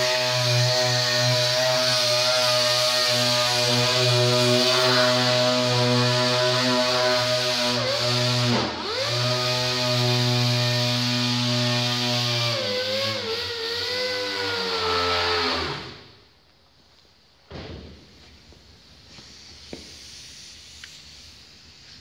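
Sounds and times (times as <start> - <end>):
air orbital sander running: 0.0 - 13.8.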